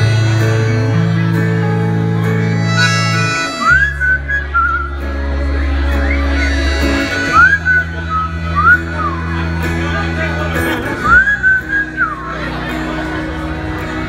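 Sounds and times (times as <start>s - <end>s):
band playing guitar and bass: 0.0s - 14.0s
audience whistling: 2.8s - 5.1s, 6.0s - 9.4s, 11.0s - 12.3s.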